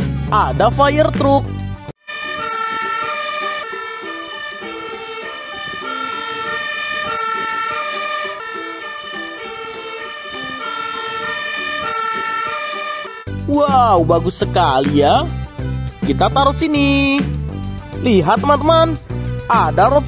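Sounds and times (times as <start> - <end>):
fire engine two-tone siren: 2.0 - 13.3.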